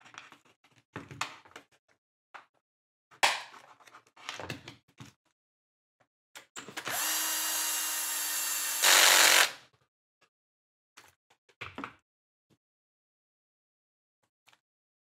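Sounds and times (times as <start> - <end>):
cordless screwdriver running: 6.8 - 9.6.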